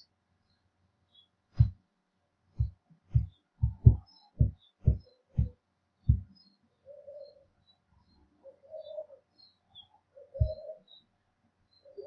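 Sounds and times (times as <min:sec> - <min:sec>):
low dull thumps: 0:01.6 - 0:01.8, 0:02.6 - 0:06.3.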